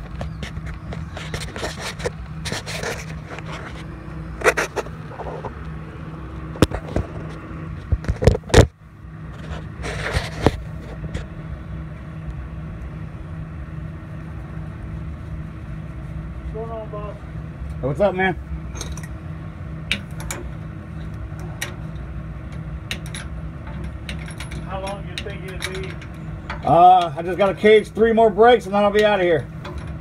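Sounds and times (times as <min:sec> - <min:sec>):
engine humming: 0:00.0 - 0:30.0
hand scraping and knocking metal: 0:21.4 - 0:30.0.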